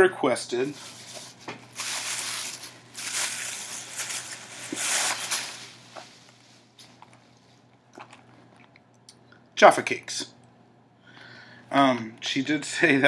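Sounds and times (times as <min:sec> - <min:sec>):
plastic bag rustling: 0:00.6 - 0:08.2.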